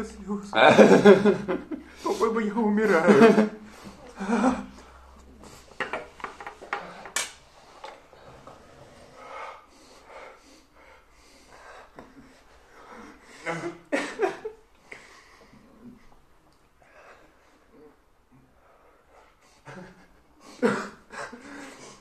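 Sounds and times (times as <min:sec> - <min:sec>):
people breathing hard and gasping: 0:03.4 - 0:22.0.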